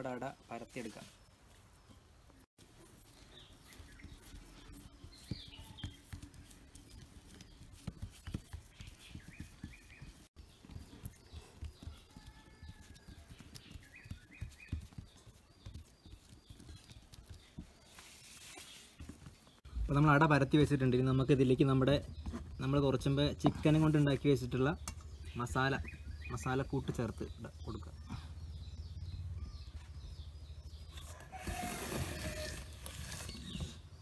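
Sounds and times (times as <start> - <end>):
birds chirping: 0.0 - 34.0
fingers patting dough: 3.6 - 18.1.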